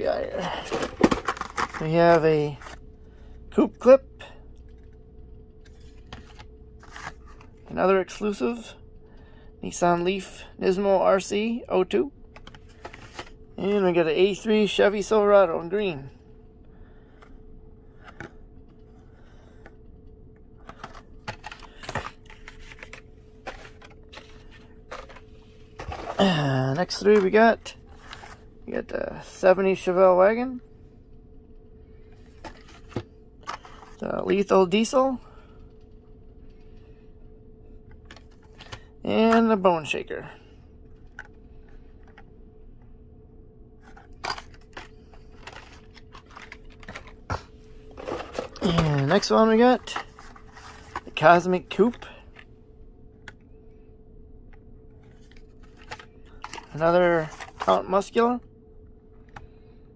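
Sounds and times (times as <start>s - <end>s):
faint steady hum: 0.0s - 59.9s
plastic packages clicking and rustling: 0.2s - 3.2s, 4.6s - 7.7s, 12.3s - 13.4s, 20.6s - 28.5s, 37.9s - 39.5s, 43.8s - 52.5s, 55.0s - 58.1s.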